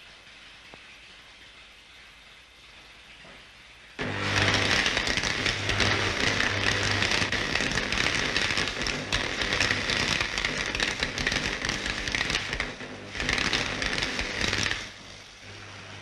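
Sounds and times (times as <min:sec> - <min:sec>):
low electrical hum: 0:00.0 - 0:16.0
electrical sparks crackling: 0:04.0 - 0:16.0.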